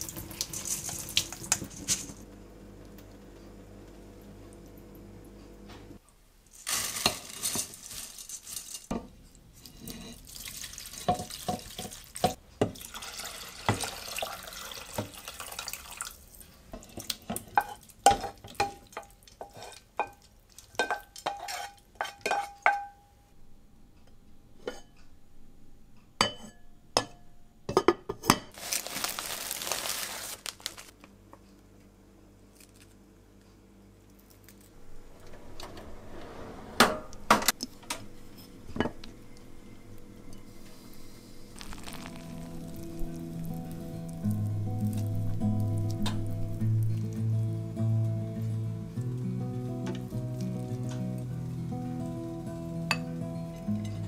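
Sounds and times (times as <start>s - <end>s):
running water: 41.5s - 47.2s.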